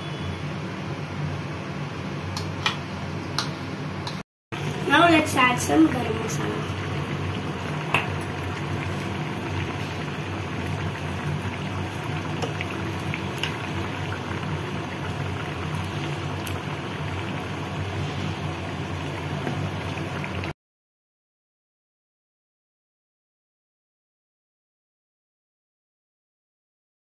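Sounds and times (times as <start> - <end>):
curry bubbling in a pot: 4.6 - 20.6.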